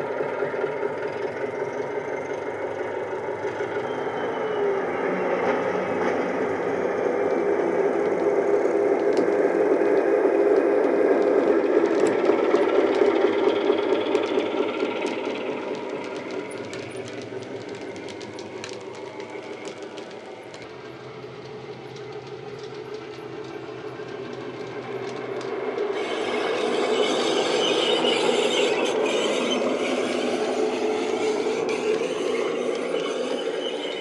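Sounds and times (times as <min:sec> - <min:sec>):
model train wheels clicking on track: 0:00.0 - 0:04.1, 0:05.9 - 0:34.0.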